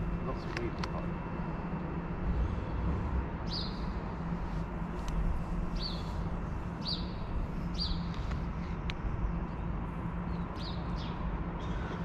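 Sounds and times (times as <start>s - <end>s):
low rumble with faint hum: 0.0s - 12.0s
small bird chirping: 5.7s - 6.2s, 6.8s - 8.2s.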